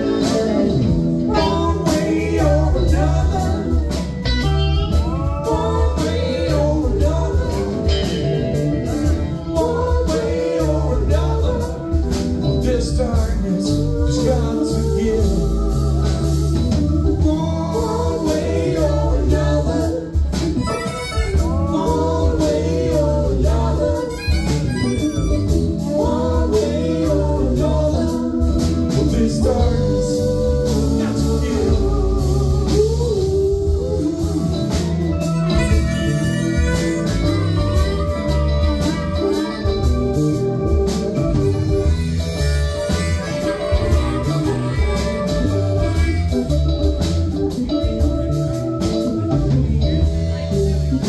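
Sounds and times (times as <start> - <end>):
live blues-rock band playing: 0.0 - 51.0
harmonica bending notes: 13.2 - 28.9, 29.5 - 50.3.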